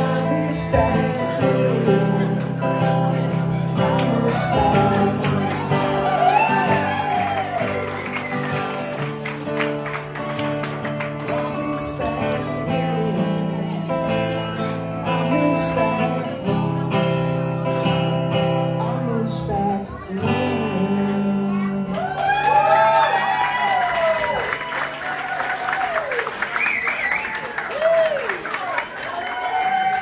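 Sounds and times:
person singing: 0.0s - 7.7s, 11.1s - 22.2s
acoustic guitar strumming: 0.0s - 21.9s.

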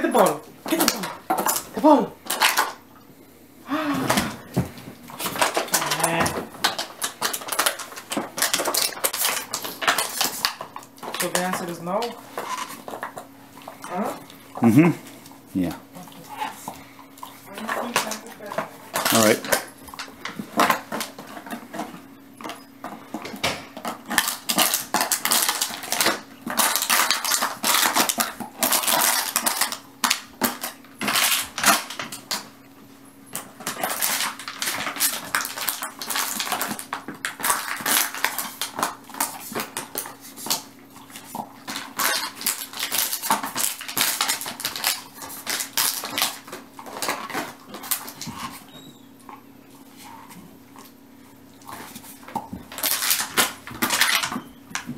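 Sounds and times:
plastic bottle crackling: 23.3s - 32.4s, 33.6s - 48.6s.

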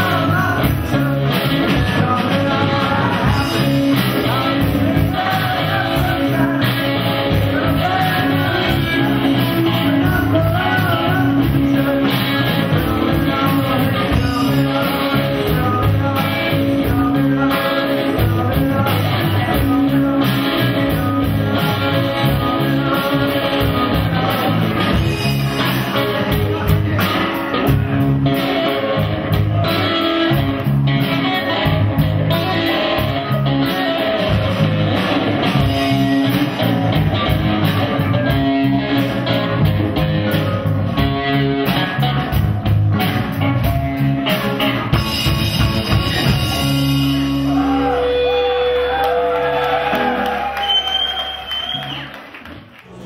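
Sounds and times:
electric guitar: 0.0s - 52.8s
bass guitar: 0.0s - 53.0s
drums: 0.0s - 53.0s.

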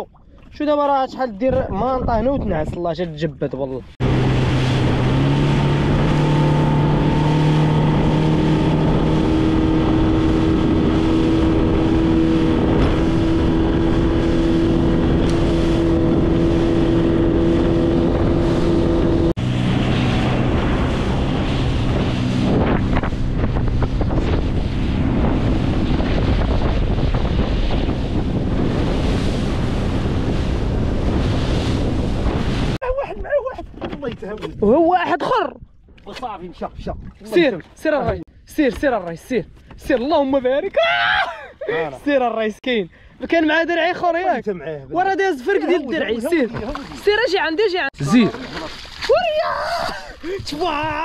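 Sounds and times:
wind on microphone: 1.3s - 3.2s, 3.8s - 34.9s
outboard motor running: 4.0s - 34.6s.

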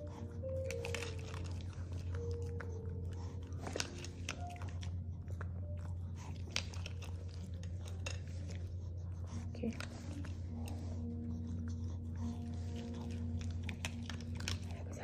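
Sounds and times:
dog crunching dry kibble: 0.0s - 15.0s
steady low hum: 0.0s - 15.0s.

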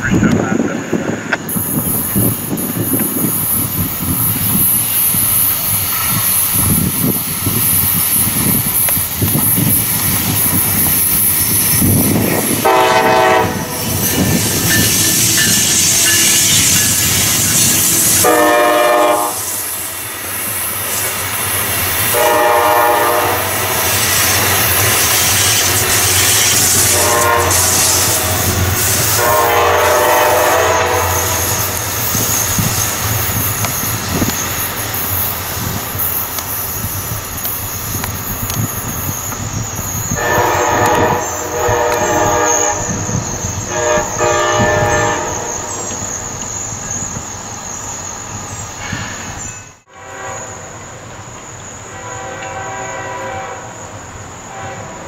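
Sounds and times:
rolling train: 0.0s - 55.0s
diesel locomotive horn blasts: 12.6s - 13.9s, 18.2s - 19.6s, 22.1s - 24.0s, 26.6s - 31.7s, 40.2s - 43.0s, 43.7s - 45.8s, 49.9s - 50.8s, 51.8s - 53.8s, 54.4s - 55.0s.

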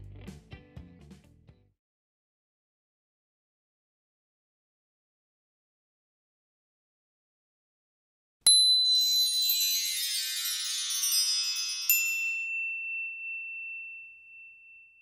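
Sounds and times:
bright logo chimes: 8.5s - 15.0s.

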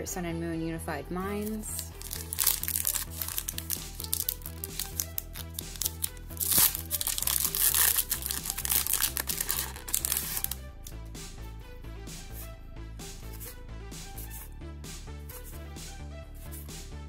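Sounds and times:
background music with bass beat: 1.0s - 17.0s
foil wrapper crinkling and tearing: 1.5s - 10.6s.

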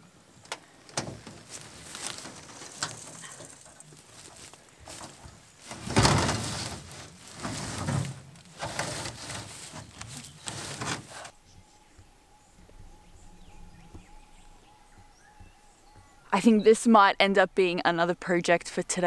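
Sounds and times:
corrugated iron scraping and rattling: 0.9s - 11.4s.

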